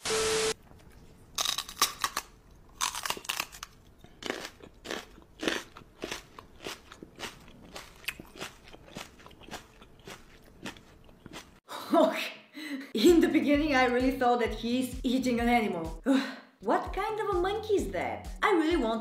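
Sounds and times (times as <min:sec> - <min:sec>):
crunchy chewing: 0:00.6 - 0:11.6.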